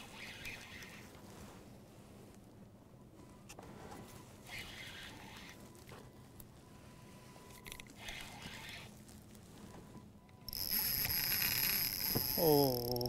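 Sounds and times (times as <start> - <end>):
motor hum wavering in pitch: 10.5 - 13.0.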